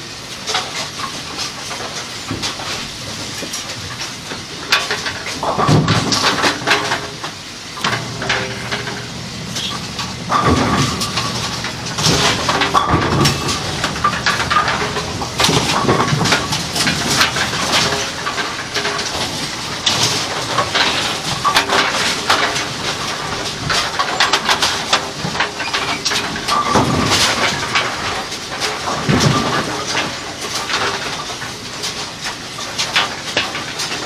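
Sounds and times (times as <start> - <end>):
bowling pins knocking and clattering: 4.7 - 32.0
machine humming: 7.7 - 19.6.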